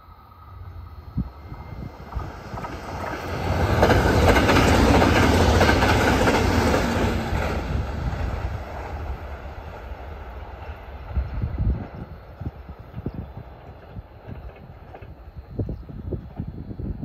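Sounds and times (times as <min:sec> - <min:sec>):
train passing at speed: 0:00.0 - 0:17.0.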